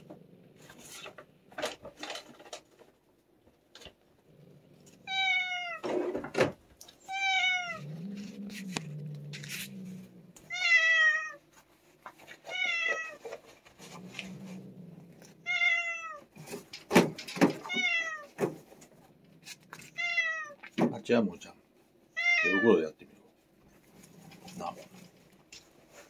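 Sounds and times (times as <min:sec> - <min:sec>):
cat meowing: 0:05.0 - 0:05.9, 0:07.0 - 0:08.1, 0:10.4 - 0:11.4, 0:12.4 - 0:13.2, 0:15.4 - 0:16.3, 0:17.6 - 0:18.4, 0:19.8 - 0:20.7, 0:22.1 - 0:22.8.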